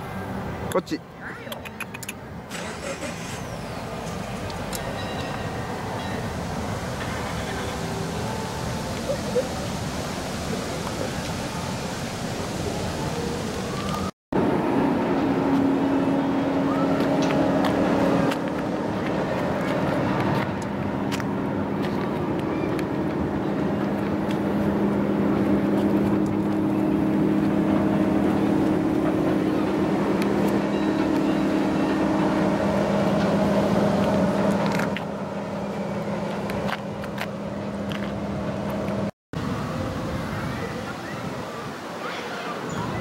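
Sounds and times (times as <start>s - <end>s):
low engine hum: 1.6s - 41.7s.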